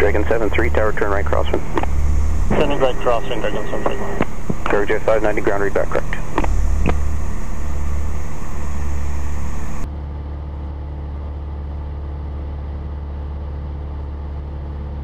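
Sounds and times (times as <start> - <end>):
aircraft engine and propeller drone: 0.0 - 9.9
radio hiss: 0.0 - 9.9.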